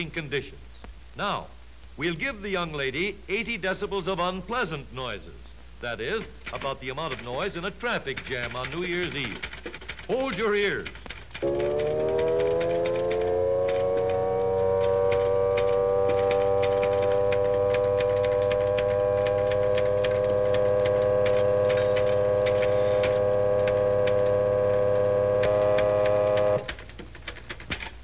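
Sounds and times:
typewriter keys clacking: 6.4s - 14.2s, 14.8s - 24.3s, 25.5s - 28.0s
loud steady whining tone: 11.4s - 27.6s.

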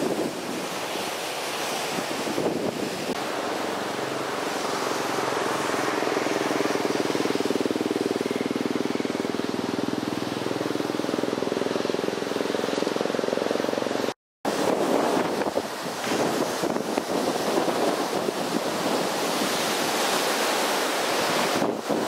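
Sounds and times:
surf crashing: 0.0s - 22.0s
wind on microphone: 0.0s - 22.0s
engine hum: 3.1s - 14.2s.

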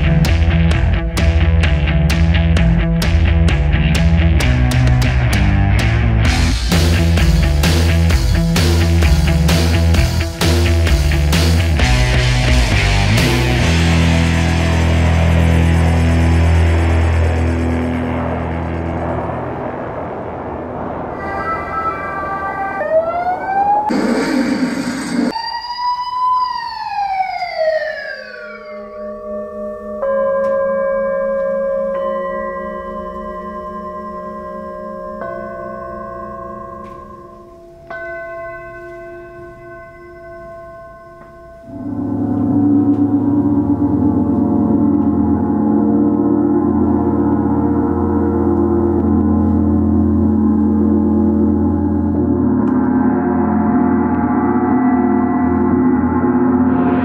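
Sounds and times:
large gong ringing: 11.8s - 22.8s, 28.8s - 57.0s.

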